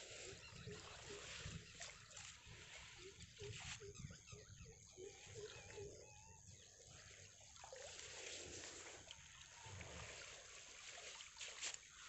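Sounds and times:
faint animal calls: 0.0s - 7.3s
fishing net rustling in water: 7.6s - 12.0s.

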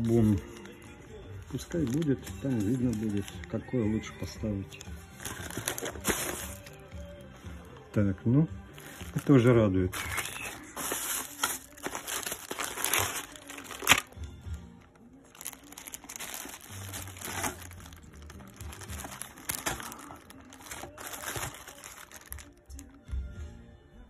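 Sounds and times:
plastic bags crinkling: 0.0s - 4.4s, 5.2s - 6.8s, 8.8s - 23.0s.

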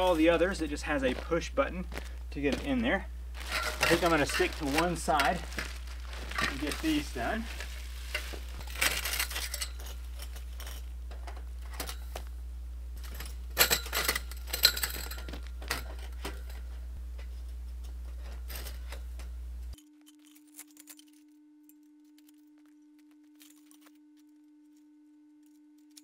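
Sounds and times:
steady low hum: 0.0s - 26.0s
metal poles clinking and knocking: 3.4s - 12.2s, 13.0s - 16.8s.

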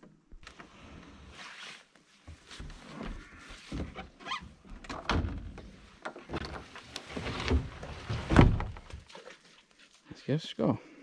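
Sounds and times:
kayak knocking and scraping: 1.9s - 10.0s.

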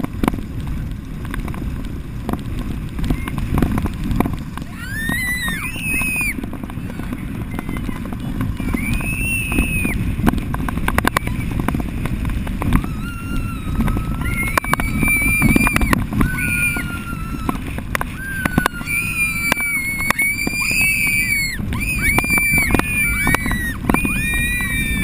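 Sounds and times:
water rushing: 0.0s - 25.0s
wind on microphone: 0.0s - 25.0s
children shrieking: 4.6s - 10.0s, 12.7s - 25.0s.

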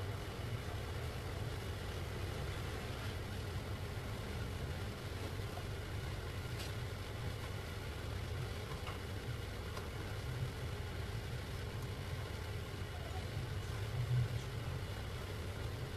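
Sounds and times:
kitchen fan humming: 0.0s - 15.9s.

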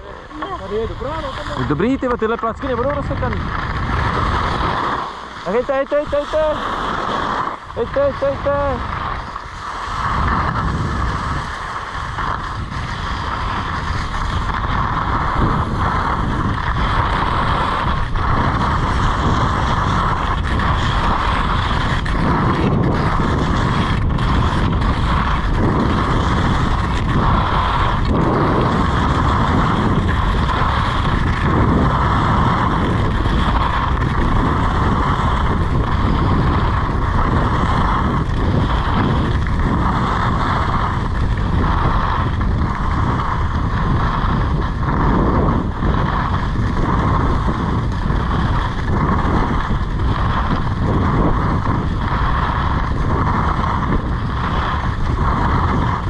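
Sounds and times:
skis sliding on snow: 0.0s - 56.0s
wind rushing over microphone: 0.0s - 56.0s.

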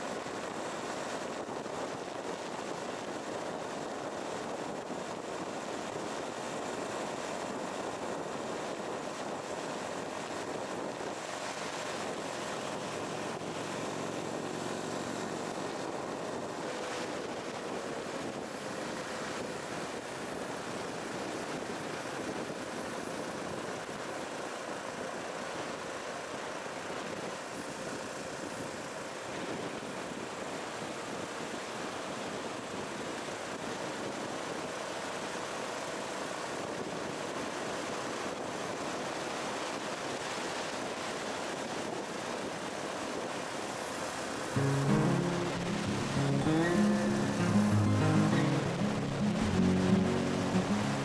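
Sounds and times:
wind rush on microphone: 0.0s - 34.9s.

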